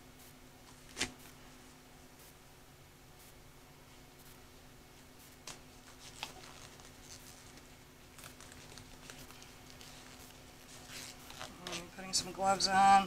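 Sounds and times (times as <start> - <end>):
low hum of lab equipment: 0.0 - 13.0
disposable gloves rustling: 5.0 - 12.7.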